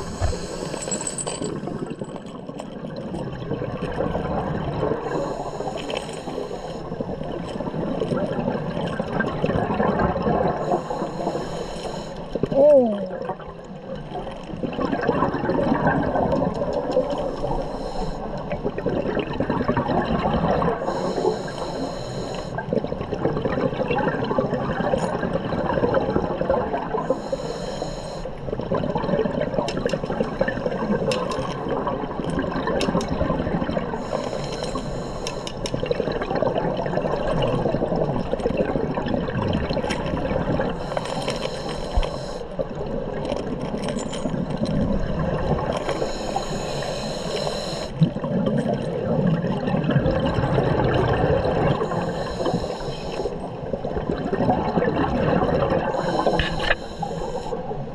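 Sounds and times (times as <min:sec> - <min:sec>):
hissing regulator breaths: 0:00.0 - 0:01.7, 0:05.1 - 0:07.1, 0:10.6 - 0:12.3, 0:17.1 - 0:18.5, 0:20.8 - 0:22.6, 0:27.0 - 0:28.4, 0:34.0 - 0:35.7, 0:40.8 - 0:42.6, 0:45.8 - 0:48.0, 0:51.8 - 0:53.5, 0:55.9 - 0:57.8
bubbles gurgling: 0:01.4 - 0:05.8, 0:06.5 - 0:11.0, 0:12.4 - 0:17.5, 0:18.2 - 0:21.3, 0:22.5 - 0:27.2, 0:28.4 - 0:34.1, 0:35.6 - 0:40.9, 0:42.5 - 0:46.5, 0:47.4 - 0:57.9.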